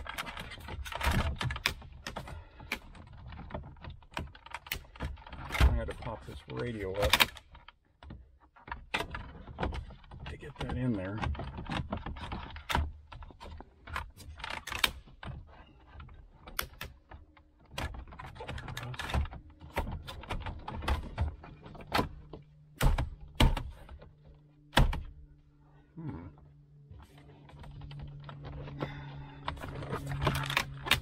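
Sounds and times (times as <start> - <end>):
sharp plastic snaps: 0.0 - 5.8, 13.9 - 15.3, 16.4 - 24.0, 29.5 - 31.0.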